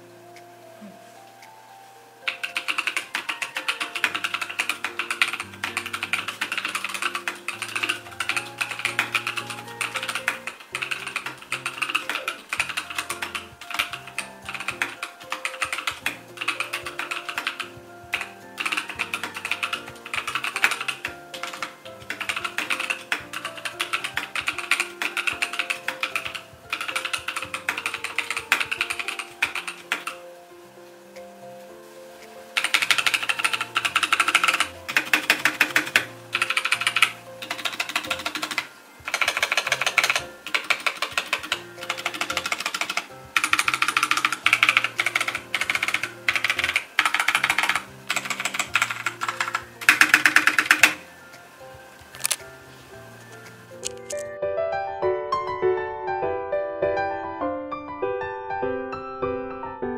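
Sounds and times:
soft piano music: 0:00.0 - 0:59.9
mechanical keyboard typing: 0:02.3 - 0:30.2, 0:32.6 - 0:51.1, 0:52.0 - 0:52.4, 0:53.8 - 0:54.3.

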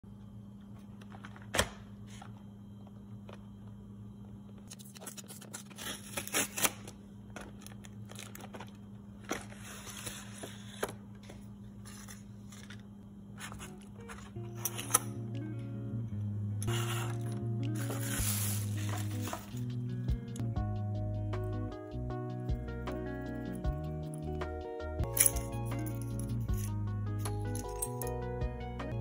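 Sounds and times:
steady low hum: 0:00.0 - 0:29.0
plastic packaging crinkling: 0:04.7 - 0:10.3.

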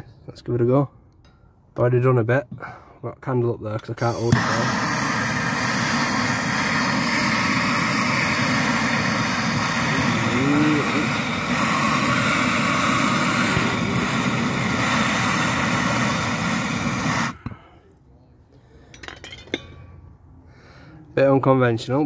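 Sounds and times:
blowtorch flame hissing: 0:04.0 - 0:17.8.

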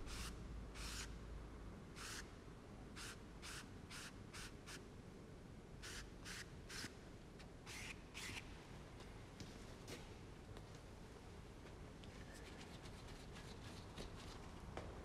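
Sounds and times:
paintbrush brushing on paper: 0:12.4 - 0:14.4.

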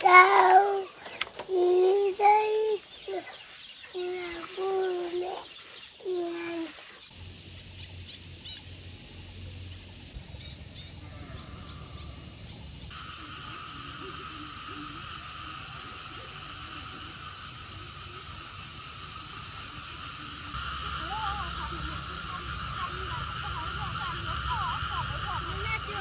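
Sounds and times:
faint bird calls: 0:00.0 - 0:07.1
steady high-pitched drone: 0:11.8 - 0:26.0.

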